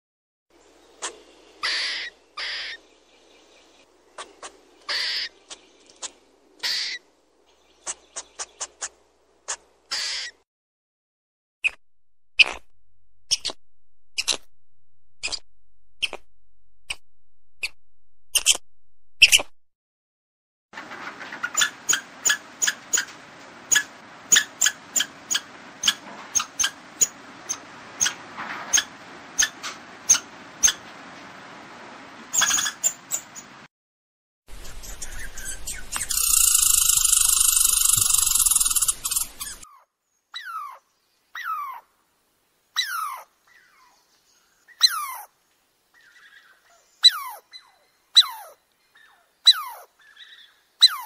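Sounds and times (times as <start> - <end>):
squirrel chips and harsh calls: 0.9 - 2.9, 4.1 - 7.1, 7.7 - 10.4, 13.3 - 13.6, 21.4 - 23.1, 23.7 - 30.8, 32.3 - 33.5, 34.5 - 39.8, 42.8 - 43.8, 44.7 - 45.3, 46.0 - 51.0.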